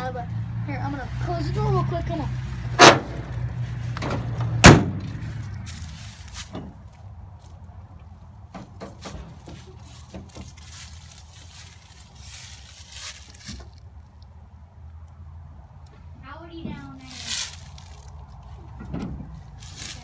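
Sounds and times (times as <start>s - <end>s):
truck cab door slamming: 2.8s - 3.2s, 4.0s - 5.1s
faint knocks and rustles of handling: 3.9s - 11.8s.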